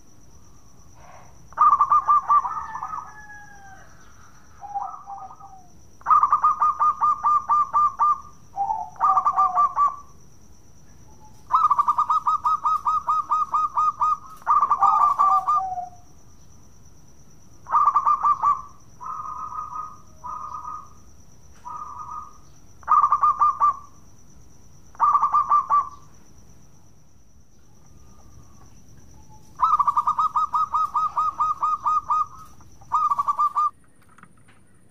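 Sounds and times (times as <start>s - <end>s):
dove cooing: 1.0s - 10.2s, 11.2s - 16.1s, 17.6s - 21.0s, 21.6s - 24.0s, 24.9s - 26.1s, 27.9s - 33.7s.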